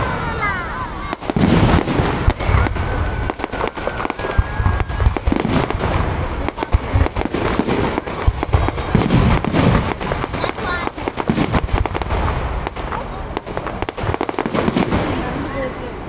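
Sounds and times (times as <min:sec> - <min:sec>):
fireworks booming and cracking: 0:00.0 - 0:16.0.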